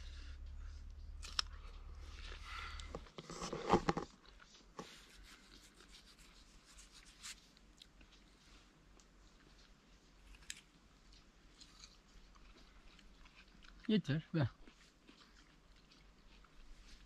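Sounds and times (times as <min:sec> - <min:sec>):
soft clicks and rustles: 0:00.4 - 0:13.1
crunching melon: 0:10.4 - 0:13.9.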